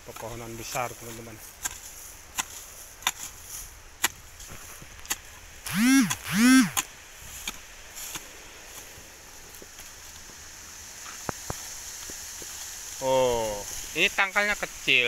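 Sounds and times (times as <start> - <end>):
hand tool chopping into soil: 1.6 - 3.4, 4.0 - 8.3
rising and falling calls: 5.7 - 6.8.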